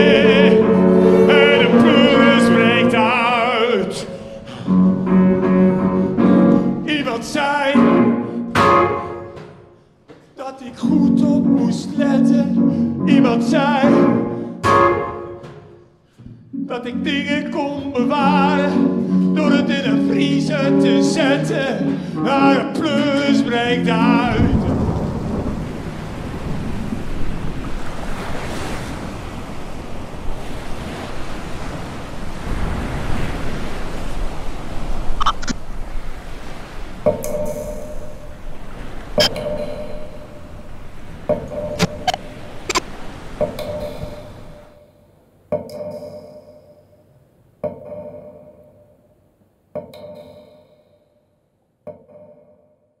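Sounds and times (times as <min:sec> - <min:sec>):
sea waves: 0:00.0 - 0:47.1
wind: 0:24.3 - 0:49.0
struck percussion ringing: 0:37.1 - 0:38.5, 0:39.2 - 0:42.8, 0:45.6 - 0:47.0.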